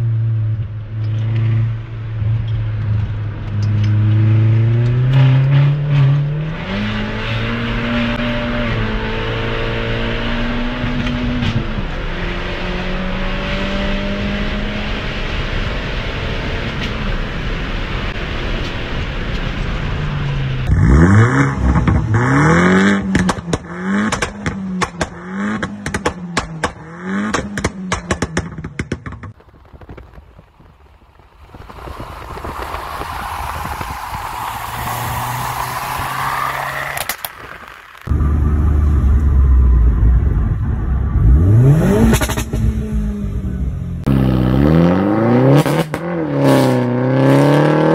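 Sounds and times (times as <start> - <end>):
car engine revving: 0.0 - 18.4, 19.6 - 28.9, 31.4 - 47.9
engine drone under acceleration: 0.0 - 29.6, 31.0 - 47.9
exhaust crackles and bangs: 21.6 - 22.3, 23.0 - 44.2.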